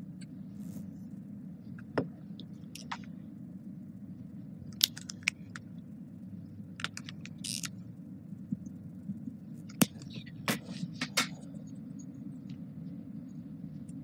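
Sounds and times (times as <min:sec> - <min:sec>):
low room hum: 0:00.0 - 0:14.0
marker pen on whiteboard: 0:09.8 - 0:11.6.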